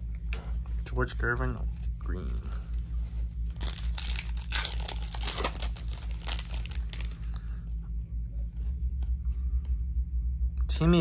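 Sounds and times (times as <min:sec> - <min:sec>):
steady low hum: 0:00.0 - 0:11.0
foil wrapper crinkling and tearing: 0:03.5 - 0:07.3.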